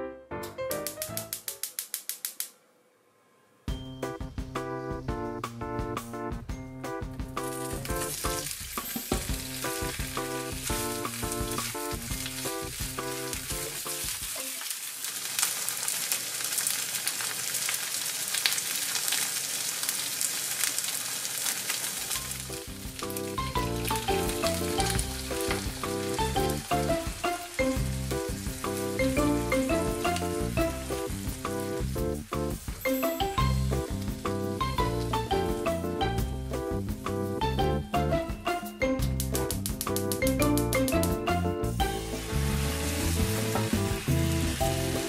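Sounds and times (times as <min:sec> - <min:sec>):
background music: 0:00.0 - 0:01.8, 0:03.6 - 0:14.2, 0:22.2 - 0:45.0
food sizzling in frying pan: 0:07.4 - 0:37.5, 0:41.8 - 0:45.0.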